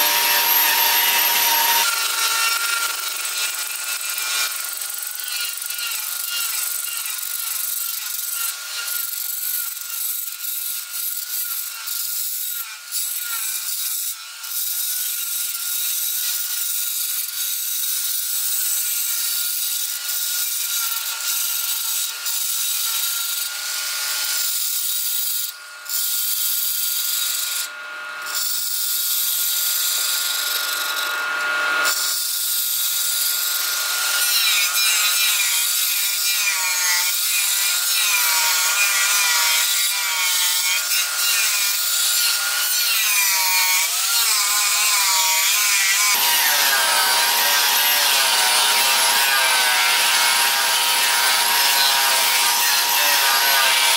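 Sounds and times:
lathe tool scraping hiss: 0.0 - 2.0.

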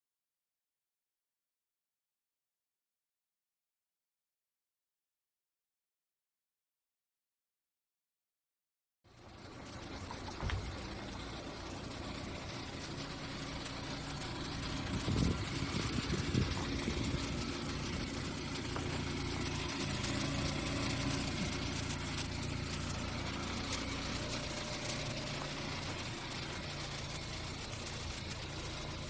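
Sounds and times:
car engine idling: 9.2 - 29.0.

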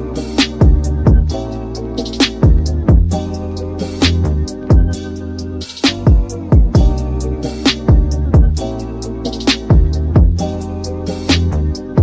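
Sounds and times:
deep bass drum hits: 6.1 - 7.0.

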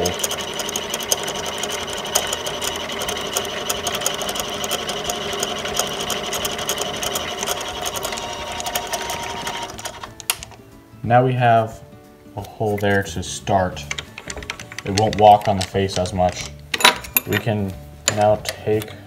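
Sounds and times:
drill cutting into bolt: 0.0 - 10.0
mini lathe running: 0.0 - 10.1
rapid irregular ticking: 13.9 - 16.5.

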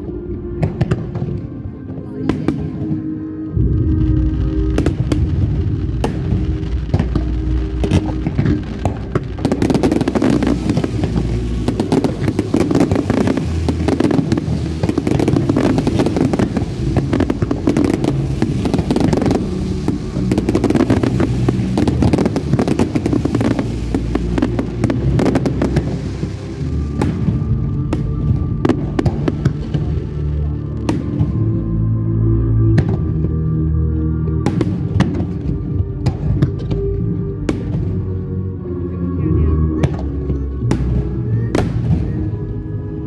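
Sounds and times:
low rumble: 0.0 - 43.0
fireworks bursting and crackling: 2.1 - 31.7, 34.3 - 38.1.

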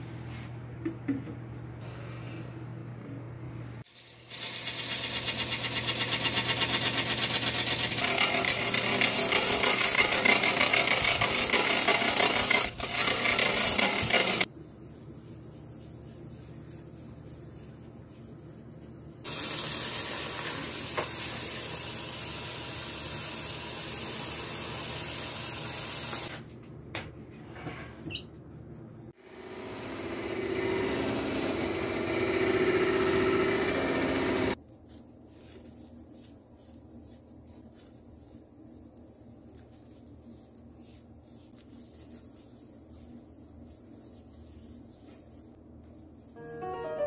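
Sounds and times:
rag rubbing on spinning lathe: 6.0 - 14.5.

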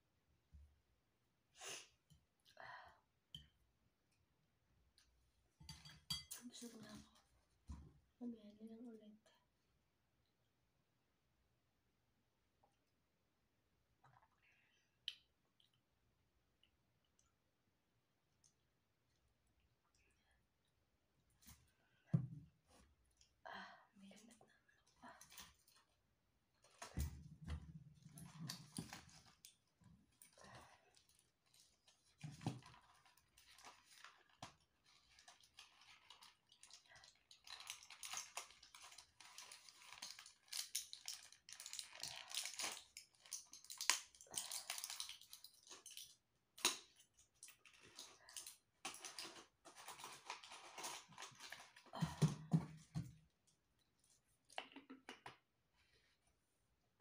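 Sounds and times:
plastic packet crinkling: 32.6 - 46.1, 47.6 - 51.8.

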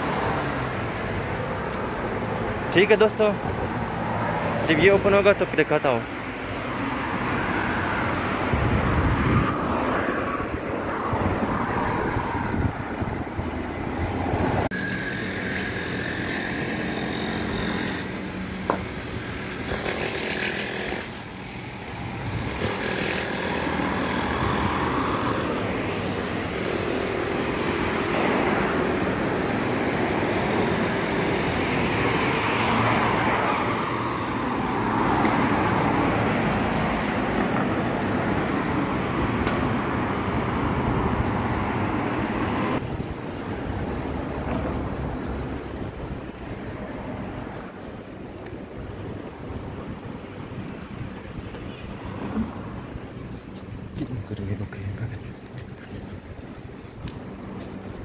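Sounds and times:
loud steady engine noise: 14.7 - 43.8.

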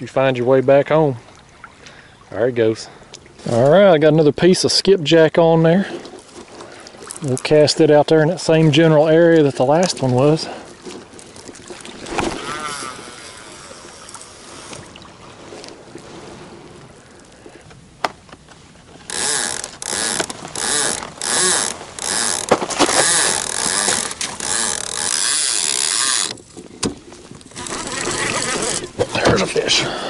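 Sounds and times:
fishing reel click: 19.1 - 26.4.

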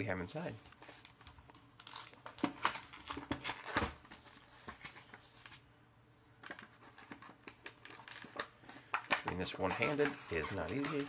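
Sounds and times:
cardboard box scraping and crinkling: 9.5 - 11.0.

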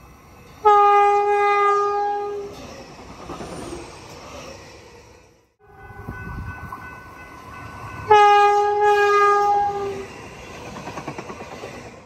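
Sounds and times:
train rumbling on rails: 0.0 - 12.0
train horn blast: 0.6 - 2.5, 8.1 - 10.0.

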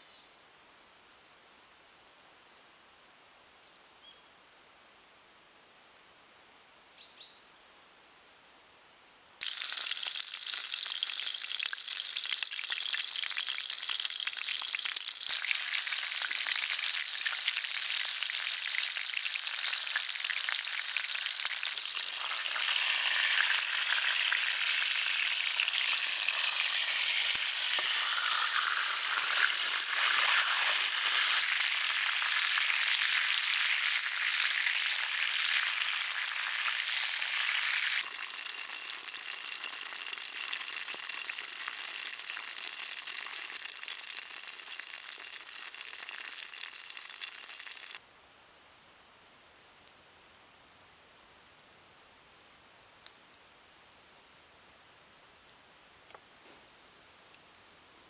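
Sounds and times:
meat sizzling and spattering in pan: 9.4 - 48.0.

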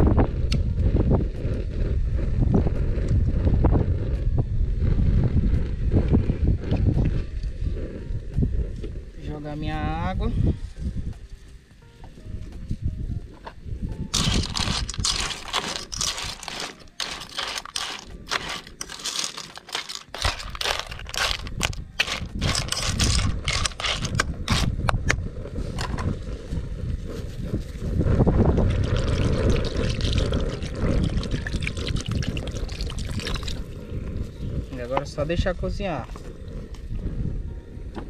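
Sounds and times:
water pouring and splashing: 14.1 - 24.7, 28.6 - 33.7
clicks and clatter: 14.1 - 25.1.

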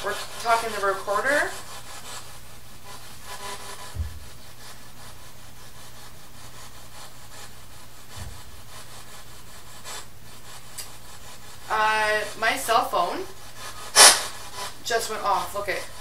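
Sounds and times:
low electrical hum: 0.0 - 16.0
soft low thumps: 3.8 - 4.6, 8.0 - 8.7
steady hiss: 4.0 - 16.0.

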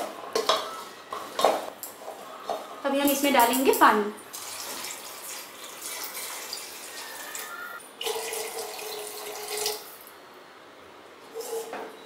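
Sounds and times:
water pouring into a pot: 4.3 - 7.4, 8.0 - 9.9.

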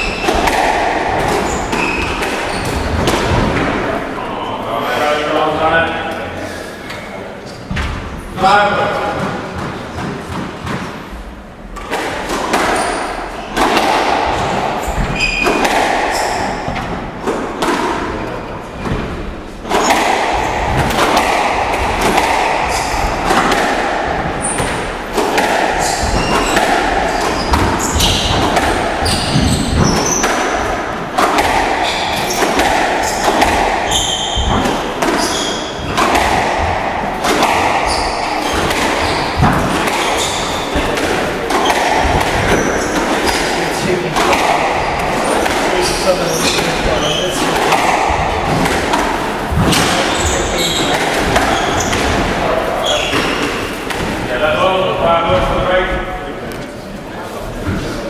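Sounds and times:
rackets striking squash ball: 0.0 - 4.3, 7.5 - 56.7
shoe squeaks: 1.5 - 3.0, 12.7 - 13.6, 14.4 - 16.7, 22.6 - 23.2, 24.4 - 24.8, 25.7 - 30.4, 31.8 - 32.4, 33.9 - 36.0, 37.7 - 40.8, 42.4 - 43.4, 44.8 - 47.4, 49.7 - 52.1, 52.8 - 53.6
ball thudding against walls: 11.8 - 54.2.

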